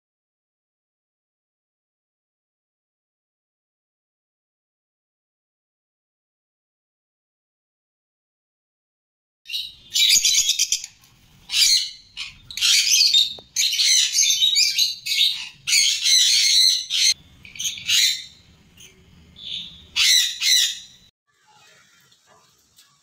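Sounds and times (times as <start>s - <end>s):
lovebirds squawking and chattering: 9.5s - 21.1s.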